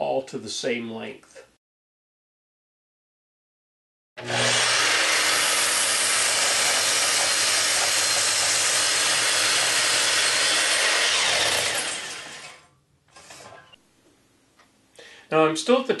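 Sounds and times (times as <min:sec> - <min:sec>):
miter saw cutting wood: 0:04.2 - 0:13.7.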